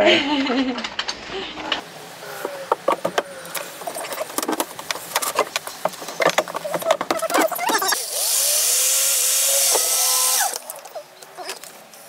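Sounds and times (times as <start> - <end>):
electric drill whining: 7.6 - 10.8.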